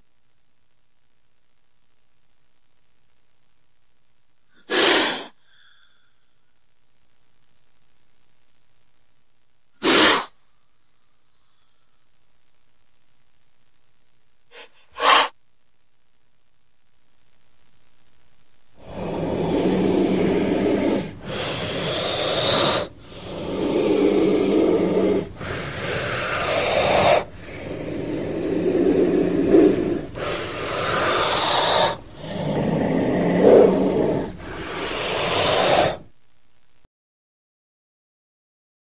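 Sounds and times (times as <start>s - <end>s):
snake hissing: 4.6s - 6.1s, 9.8s - 11.9s, 14.5s - 15.4s, 18.8s - 36.1s.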